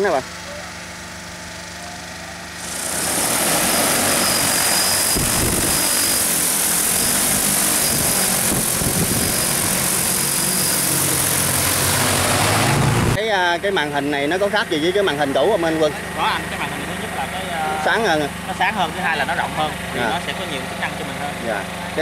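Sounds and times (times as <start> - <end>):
drone rotors spinning: 0.0 - 13.2.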